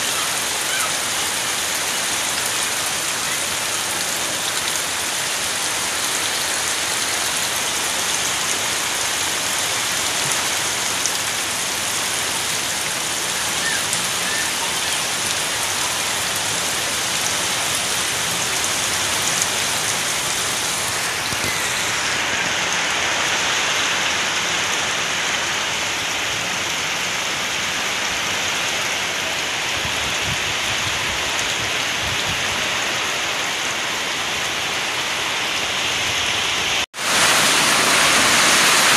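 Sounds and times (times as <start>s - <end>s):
heavy rain on leaves and roof: 0.0s - 38.9s.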